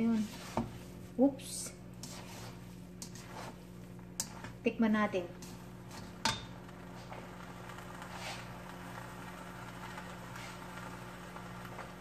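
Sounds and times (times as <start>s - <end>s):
soft rustle: 0.0s - 1.2s, 2.0s - 4.6s
low steady hum: 0.0s - 12.0s.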